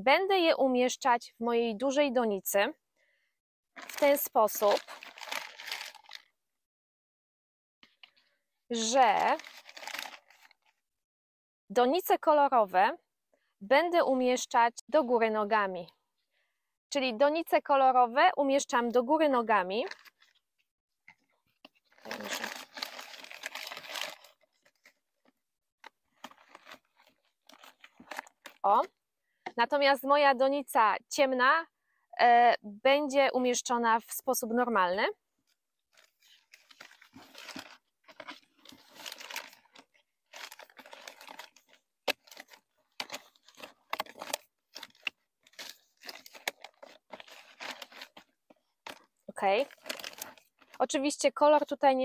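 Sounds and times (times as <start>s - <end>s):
plastic sheeting crinkling: 21.9s - 24.9s, 36.0s - 48.3s.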